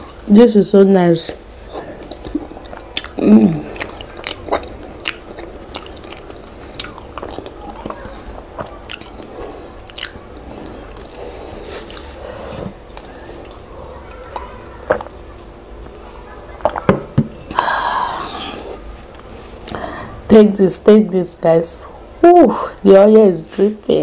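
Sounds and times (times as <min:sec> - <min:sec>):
person chewing with mouth clicks: 0:01.4 - 0:14.5.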